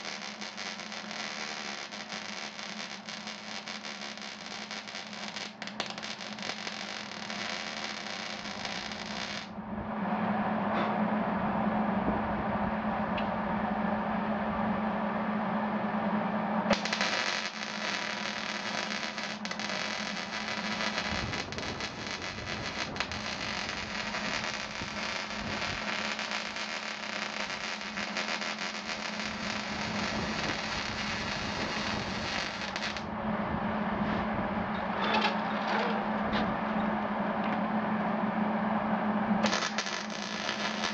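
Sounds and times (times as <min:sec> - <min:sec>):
arc welding crackling: 0:00.0 - 0:09.5, 0:16.7 - 0:33.1, 0:39.4 - 0:40.9
steady low hum: 0:00.0 - 0:40.9.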